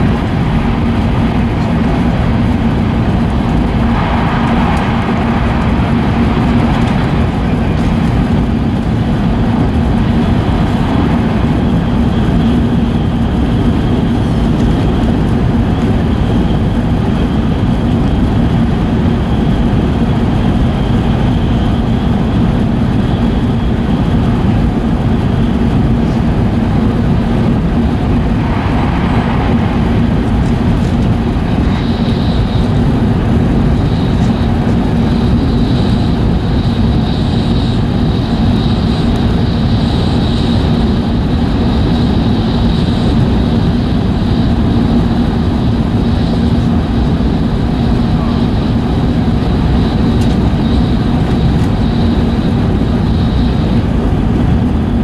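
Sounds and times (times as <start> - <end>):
train rumble inside passenger car: 0.0 - 55.0
thin high whine: 3.2 - 8.4, 26.1 - 45.0.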